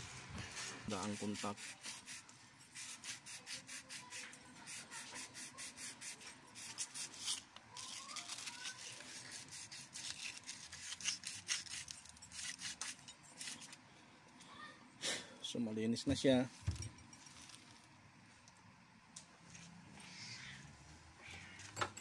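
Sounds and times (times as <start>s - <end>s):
scratchy rubbing strokes: 0.0s - 13.7s.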